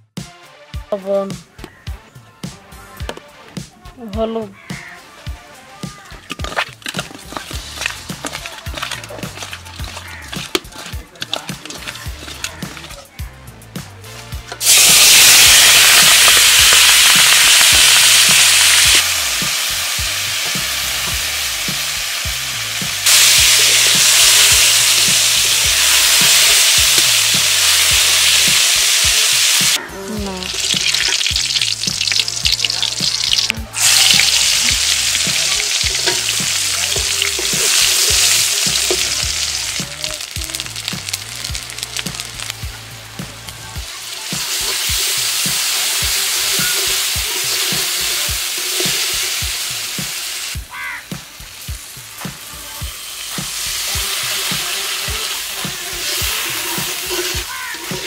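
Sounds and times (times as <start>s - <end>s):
food sizzling in hot oil: 6.1s - 58.0s
stirring in pan: 6.3s - 13.1s, 30.5s - 42.5s, 53.4s - 58.0s.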